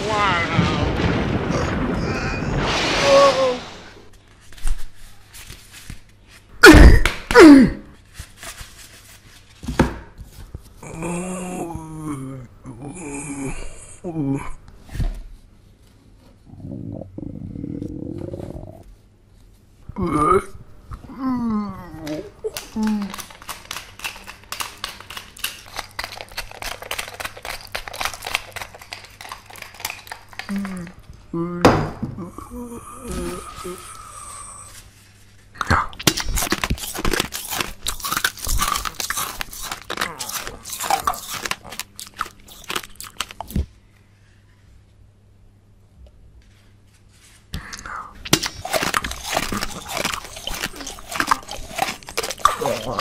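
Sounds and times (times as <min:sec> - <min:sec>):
pepper mill grinding: 0:22.0 - 0:31.0, 0:36.0 - 0:43.6, 0:48.2 - 0:53.0.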